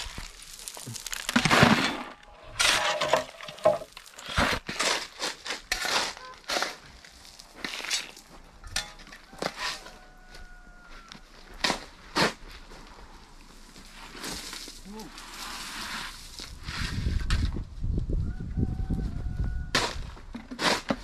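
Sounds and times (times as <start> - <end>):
shovel scraping rubble: 0.0 - 10.0, 11.5 - 12.7, 13.9 - 17.6, 19.8 - 21.0.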